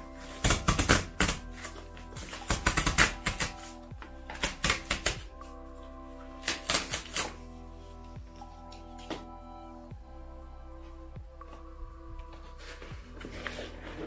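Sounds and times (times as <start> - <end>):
gentle background music: 0.0 - 14.0
cardboard tear strip ripping: 6.4 - 7.4.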